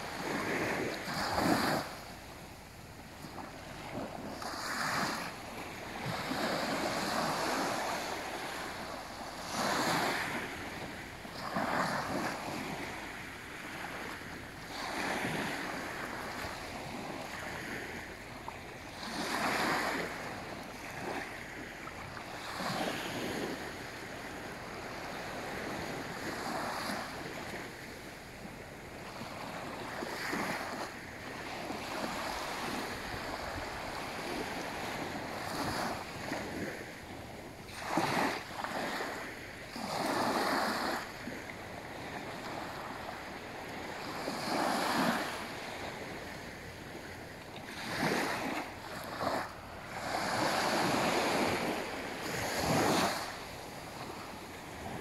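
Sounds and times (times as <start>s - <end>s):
small waves lapping on a beach: 0.0s - 55.0s.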